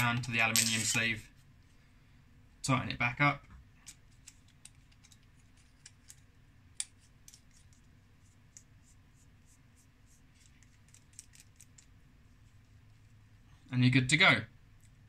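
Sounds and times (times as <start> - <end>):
small metal clicks and scrapes: 3.8 - 6.2, 6.8 - 7.8, 10.4 - 11.9.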